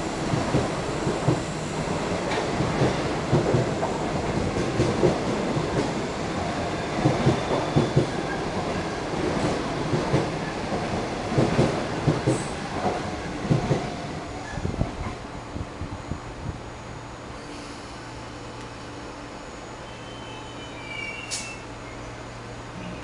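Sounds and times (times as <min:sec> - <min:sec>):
steady train rumble: 0:00.0 - 0:23.0
train wheels clattering over track: 0:00.2 - 0:06.1, 0:06.8 - 0:15.2.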